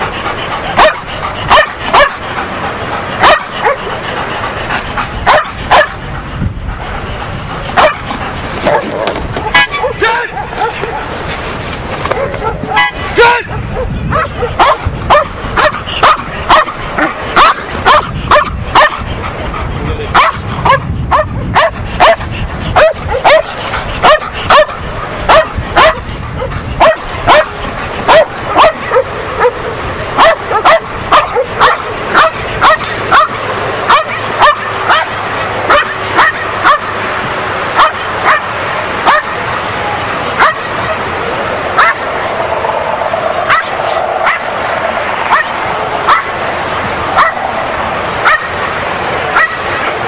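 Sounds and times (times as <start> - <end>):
dog barking: 0.7 - 2.3, 3.1 - 4.0, 5.2 - 6.0, 7.8 - 11.2, 12.0 - 19.1, 20.1 - 37.0, 37.8 - 39.4, 40.4 - 41.1, 41.8 - 42.4, 43.4 - 44.6, 45.2 - 46.4, 47.1 - 47.6, 48.2 - 50.0.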